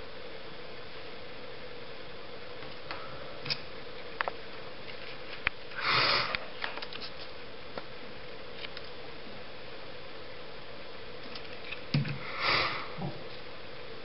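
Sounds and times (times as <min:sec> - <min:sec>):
steady background hiss: 0:00.0 - 0:14.0
person sniffing: 0:05.8 - 0:06.5, 0:12.2 - 0:13.2.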